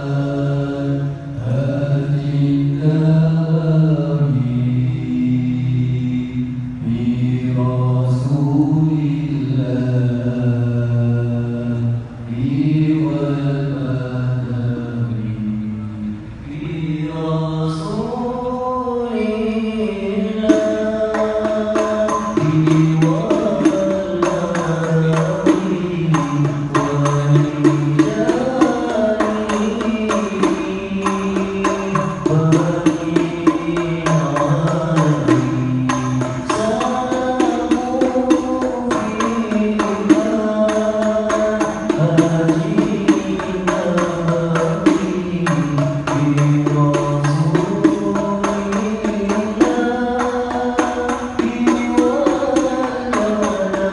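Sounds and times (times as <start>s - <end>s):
men singing a chant: 0.0s - 15.8s, 16.5s - 53.9s
frame drums beating: 20.3s - 53.9s.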